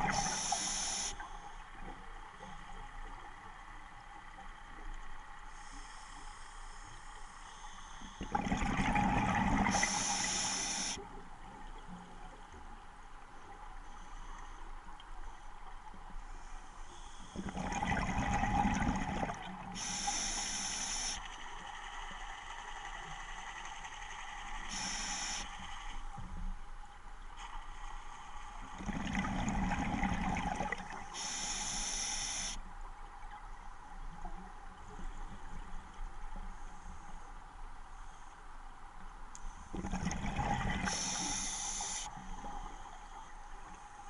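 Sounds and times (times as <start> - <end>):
regulator inhale hiss: 0.0 - 1.6, 5.5 - 8.4, 9.7 - 11.0, 16.3 - 17.6, 19.7 - 21.3, 24.7 - 25.7, 31.1 - 32.6, 40.9 - 43.1
exhaled bubbles underwater: 8.3 - 10.3, 17.5 - 19.9, 28.8 - 31.0, 39.8 - 41.2.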